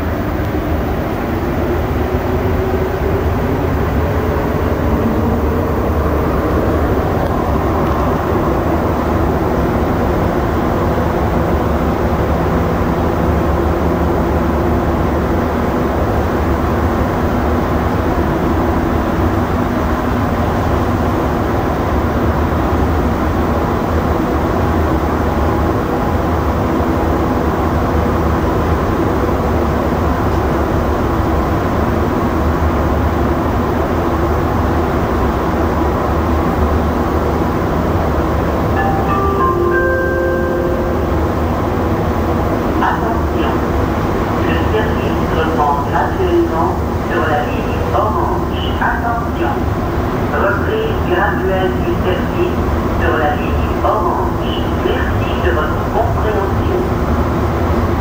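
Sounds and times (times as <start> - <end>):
train wheels rumbling on track: 0.0 - 38.8.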